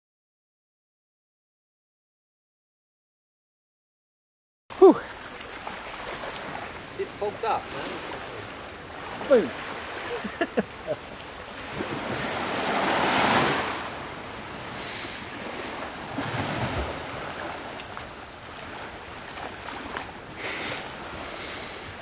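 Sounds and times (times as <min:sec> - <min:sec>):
sea wash: 0:04.7 - 0:22.0.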